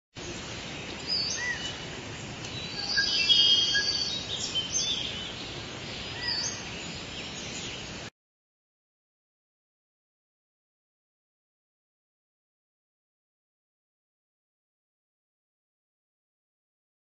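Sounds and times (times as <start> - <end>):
songbirds singing and chirping: 0.2 - 8.1
steady background hiss: 0.2 - 8.1.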